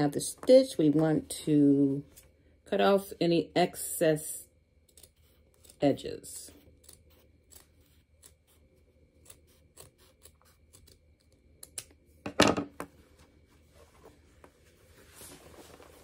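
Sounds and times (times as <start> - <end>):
scissors snipping fabric: 6.7 - 11.9
fabric rustling: 13.0 - 16.0.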